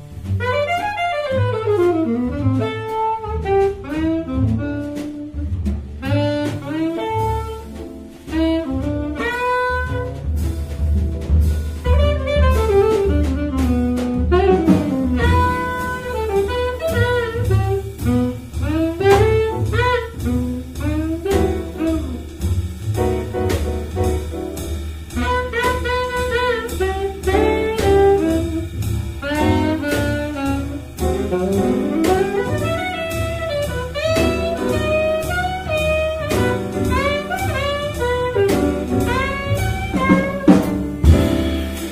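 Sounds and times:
drum kit with cymbals: 0.0 - 41.9
piano: 0.0 - 41.9
walking double bass: 0.0 - 41.9
saxophone: 0.3 - 10.4, 11.8 - 24.3, 25.2 - 41.9.

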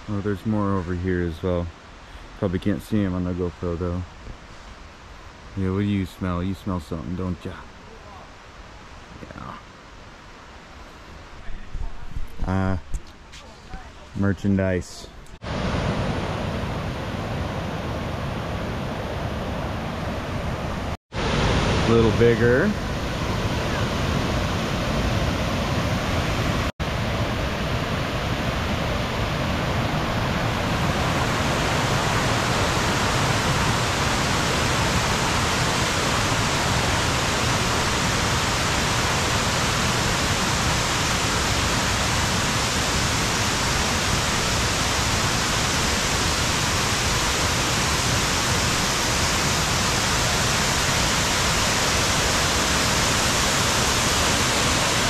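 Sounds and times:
waterfall rushing: 15.4 - 55.0.

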